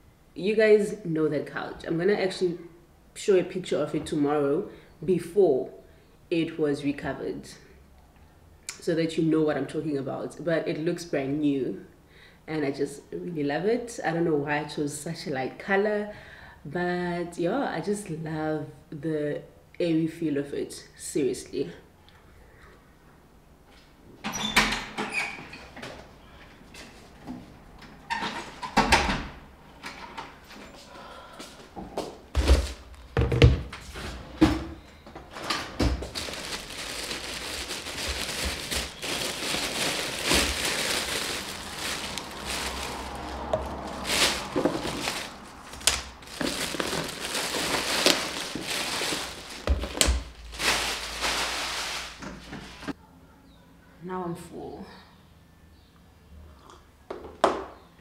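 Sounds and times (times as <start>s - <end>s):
plastic bag crinkling: 36.0s - 52.9s.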